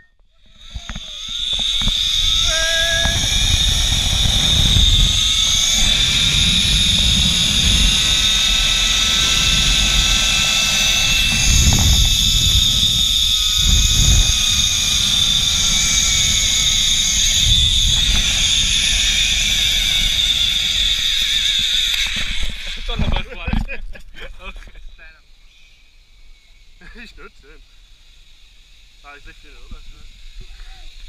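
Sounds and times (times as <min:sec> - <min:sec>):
zipline pulleys whining on cable: 0:00.0 - 0:23.5, 0:24.4 - 0:31.0
wind rushing over microphone: 0:00.4 - 0:23.6.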